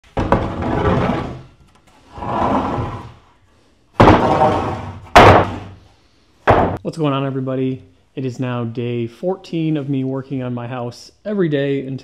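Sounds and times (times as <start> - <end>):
loud thumps or slams: 4.0 - 5.8, 6.4 - 6.8.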